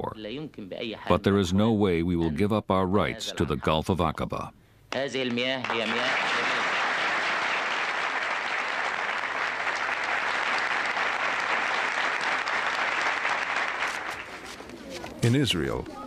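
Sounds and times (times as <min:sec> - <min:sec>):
crowd applauding: 0:05.3 - 0:14.6.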